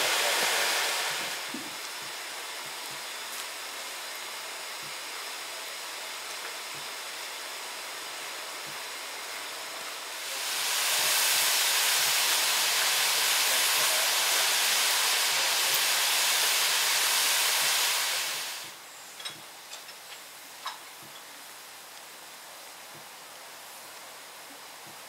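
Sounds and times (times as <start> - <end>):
steam locomotive hissing steam: 0.0 - 18.8.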